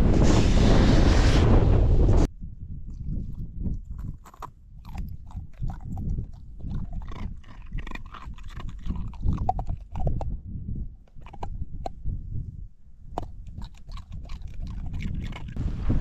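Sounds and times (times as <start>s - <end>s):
dog crunching ice: 3.2s - 10.3s, 13.2s - 15.6s.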